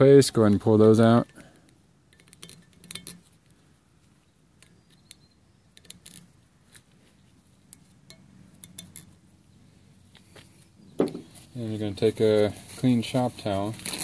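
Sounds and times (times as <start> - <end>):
light metal clicks and clinks: 7.7 - 9.2.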